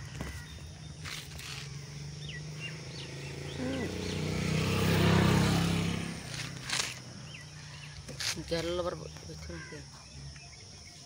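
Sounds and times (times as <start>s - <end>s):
vehicle engine passing by: 1.4s - 8.0s.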